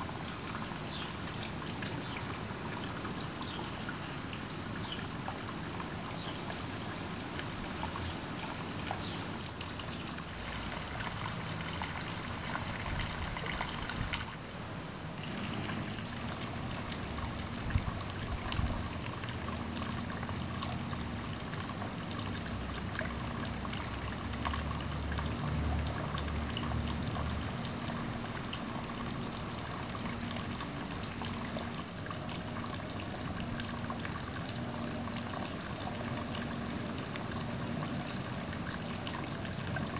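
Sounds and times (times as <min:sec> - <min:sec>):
water trickling and pouring: 0:00.0 - 0:39.9.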